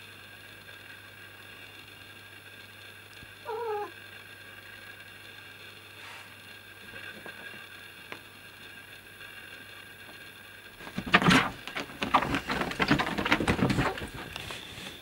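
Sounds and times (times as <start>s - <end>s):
cats scratching on sheet: 10.8s - 15.0s.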